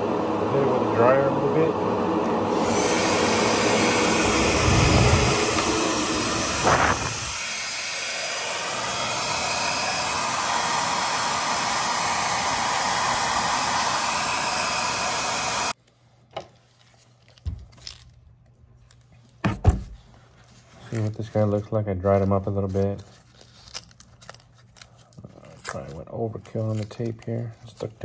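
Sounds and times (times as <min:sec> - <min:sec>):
exhaust fan running loudly: 0:00.0 - 0:15.8
aerosol spray paint hissing: 0:02.5 - 0:15.8.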